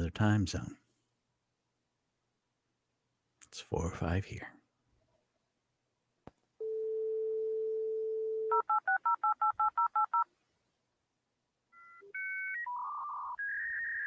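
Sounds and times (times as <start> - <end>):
dial tone: 6.6 - 10.2, 11.8 - 14.0.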